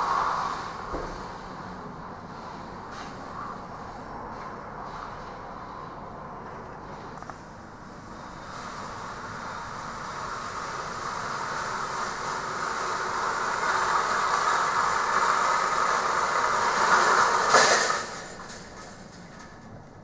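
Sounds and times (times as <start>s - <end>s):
metal roll cages rattling: 12.2s - 19.8s.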